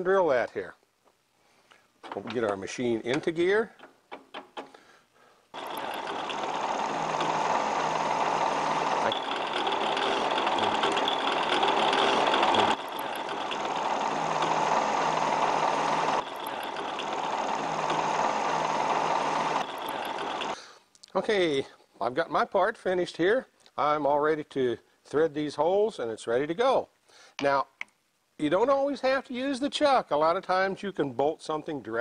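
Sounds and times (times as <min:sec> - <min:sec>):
drill bit boring into aluminium: 0:05.6 - 0:20.6
drill spindle humming: 0:05.6 - 0:20.6.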